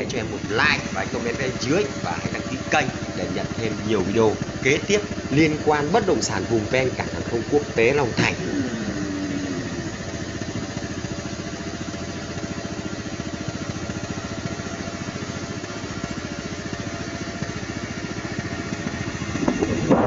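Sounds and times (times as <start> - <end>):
engine idling: 0.0 - 20.0
wind buffeting microphone: 19.4 - 20.0.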